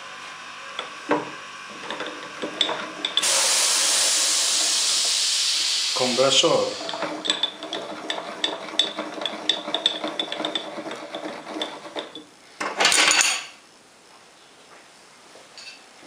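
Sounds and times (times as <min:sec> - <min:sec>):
lathe saddle clicking and rattling: 0:00.8 - 0:03.3, 0:06.0 - 0:13.2
compressed air hiss: 0:03.2 - 0:07.1.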